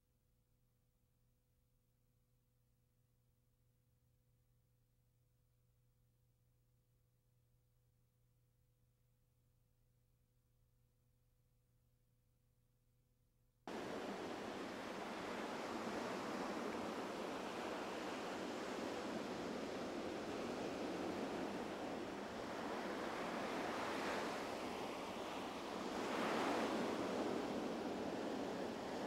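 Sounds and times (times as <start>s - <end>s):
surf breaking on beach: 13.7s - 29.0s.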